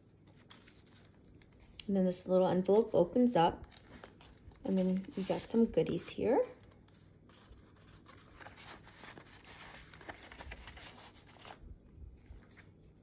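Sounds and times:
paper rustling and sliding: 0:03.7 - 0:06.0, 0:06.9 - 0:11.6.

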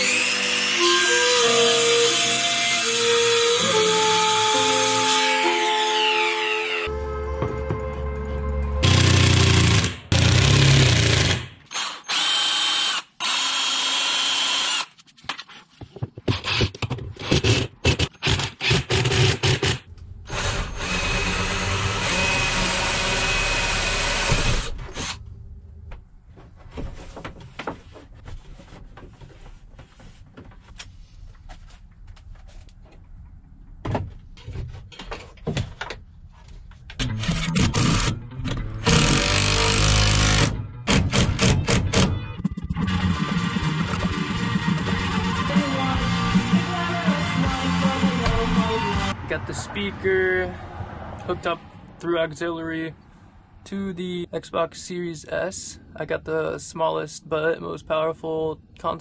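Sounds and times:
cordless drill whining: 0:08.8 - 0:14.9, 0:20.3 - 0:25.2.

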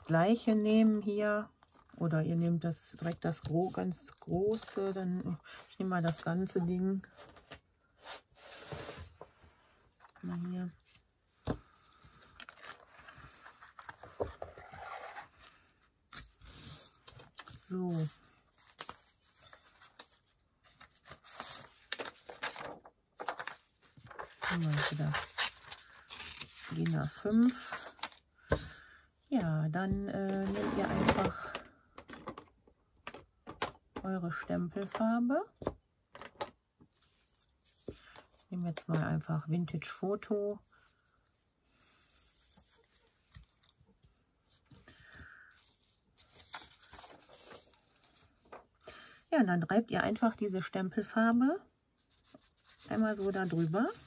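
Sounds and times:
paper rustling: 0:16.2 - 0:28.8, 0:45.7 - 0:48.6.

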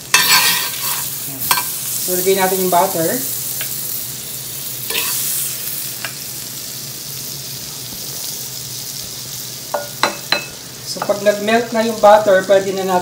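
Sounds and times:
butter sizzling on hot plate: 0:00.0 - 0:13.0.

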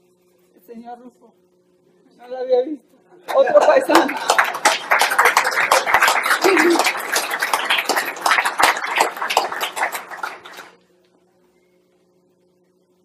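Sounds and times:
audience clapping: 0:03.3 - 0:10.8.

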